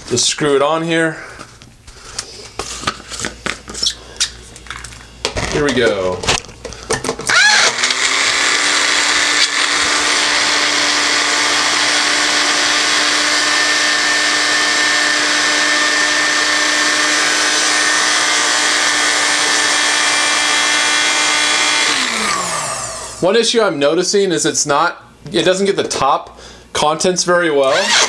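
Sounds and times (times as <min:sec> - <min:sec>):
blender motor whining: 0:07.3 - 0:23.2, 0:27.6 - 0:28.0.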